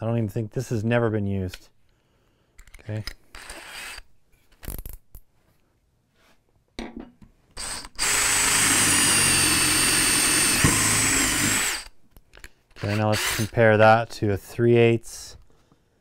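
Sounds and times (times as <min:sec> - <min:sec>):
clicks and handling noises: 0:02.6 - 0:03.2, 0:12.1 - 0:12.6
drill bit rasping wood: 0:07.6 - 0:11.9, 0:12.8 - 0:13.6
drill motor whine: 0:07.6 - 0:11.9, 0:12.8 - 0:13.5.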